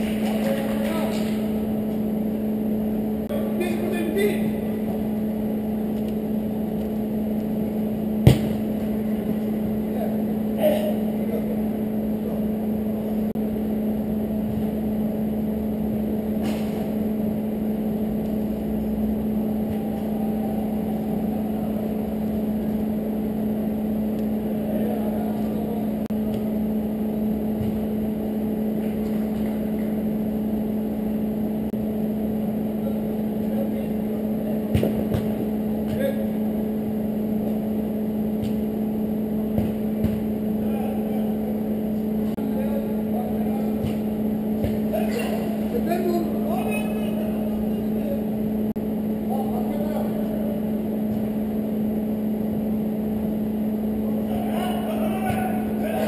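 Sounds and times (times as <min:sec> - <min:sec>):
steady low hum: 0:00.0 - 0:56.0
football being kicked: 0:08.2 - 0:08.8, 0:34.6 - 0:36.2, 0:39.5 - 0:40.4.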